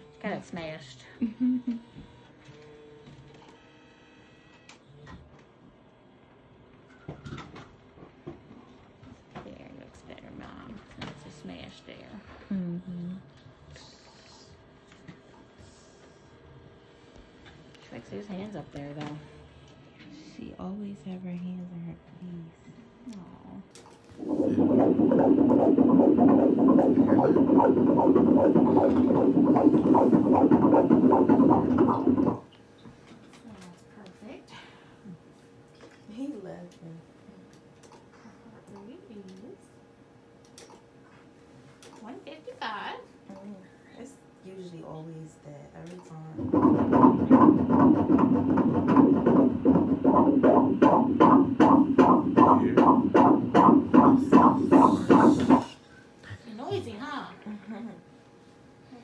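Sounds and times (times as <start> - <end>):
fetal heartbeat on doppler speaker: 24.2 - 32.5, 46.4 - 55.8.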